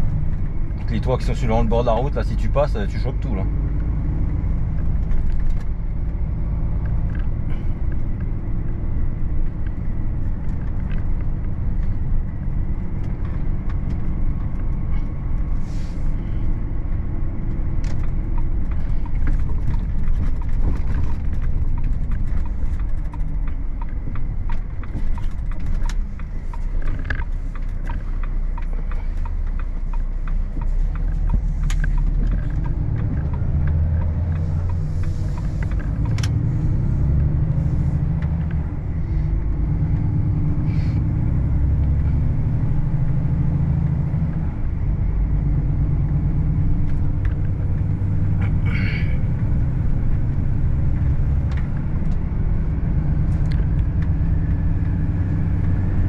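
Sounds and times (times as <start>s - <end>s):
diesel truck engine rumble: 0.0s - 56.0s
road noise: 0.0s - 56.0s.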